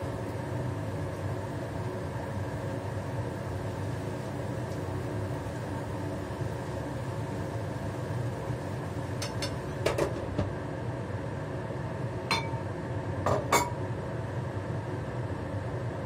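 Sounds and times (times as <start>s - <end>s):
gas stove and fan hiss: 0.0s - 16.0s
utensils clinking on frying pan: 12.3s - 12.6s, 13.3s - 13.8s.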